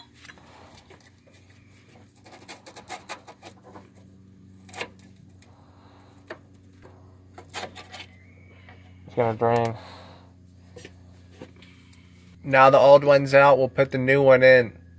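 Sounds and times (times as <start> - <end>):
steady low hum: 0.0 - 14.9
small clicks and scrapes: 0.2 - 8.2.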